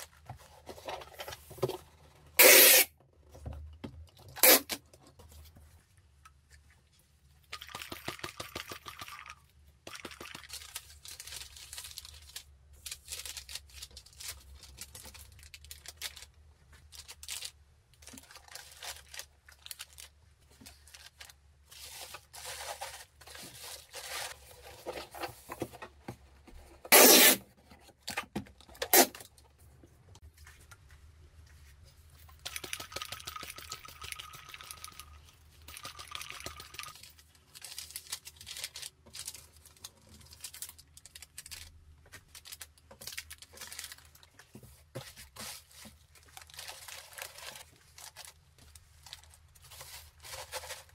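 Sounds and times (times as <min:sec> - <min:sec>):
loud short rips: 0:02.4 - 0:02.9, 0:26.9 - 0:27.4
packaging rustling and crinkling: 0:10.4 - 0:26.6, 0:36.9 - 0:50.9.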